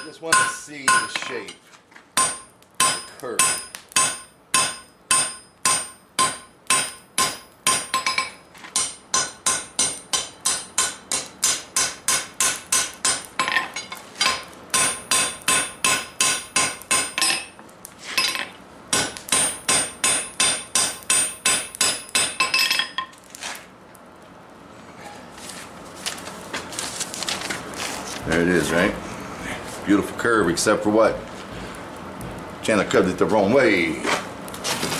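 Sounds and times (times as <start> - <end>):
hammer clanging on anvil: 0.0 - 1.6, 2.2 - 17.6.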